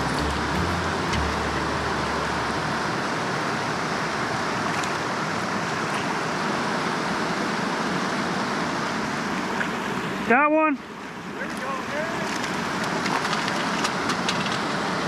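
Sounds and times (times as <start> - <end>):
low hum: 0.0 - 4.9
river water rushing over rocks: 0.0 - 15.0.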